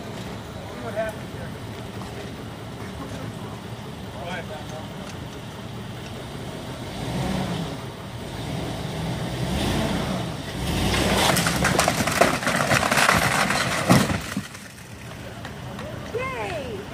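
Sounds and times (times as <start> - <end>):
wood cracking and splintering: 10.6 - 16.1.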